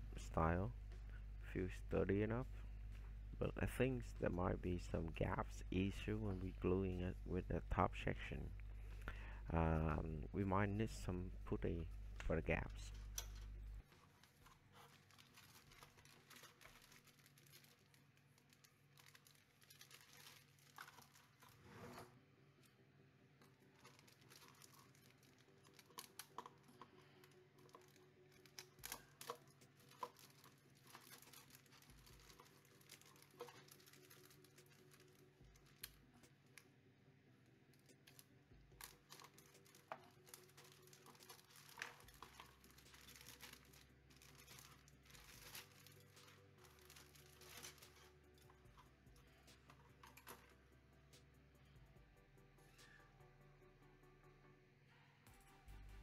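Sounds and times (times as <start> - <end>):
plastic bags crinkling: 12.7 - 21.6, 23.5 - 36.1, 37.8 - 50.5.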